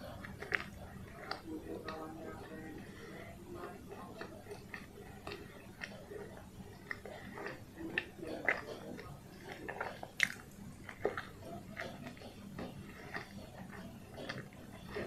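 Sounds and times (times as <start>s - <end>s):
close chewing: 0.0s - 15.0s
wet mouth clicks and smacks: 10.1s - 12.2s.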